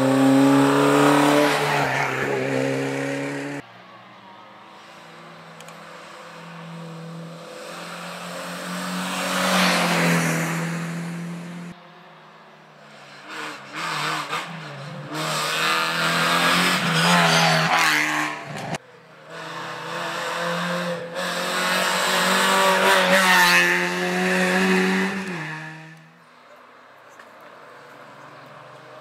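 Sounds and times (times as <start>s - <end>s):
rally car engine revving: 0.0s - 3.6s, 12.9s - 26.1s.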